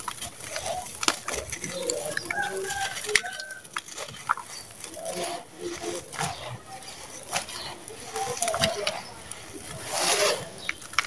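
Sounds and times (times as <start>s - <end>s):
sand-cement chunks crumbling in hands: 0.0s - 6.6s, 7.3s - 11.0s
animal calls: 0.4s - 10.8s.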